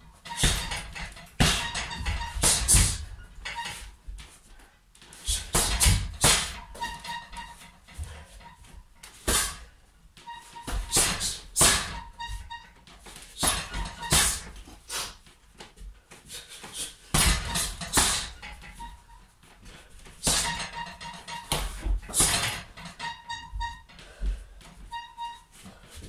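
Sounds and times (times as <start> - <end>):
chain squeaking: 0.2 - 3.9, 5.3 - 9.6, 10.2 - 14.5, 17.2 - 19.4, 20.2 - 24.0, 24.8 - 25.6
punches hitting heavy bag: 0.3 - 3.0, 5.3 - 6.7, 9.2 - 9.6, 10.7 - 12.1, 13.4 - 14.5, 17.1 - 18.4, 20.2 - 20.6, 21.5 - 22.6.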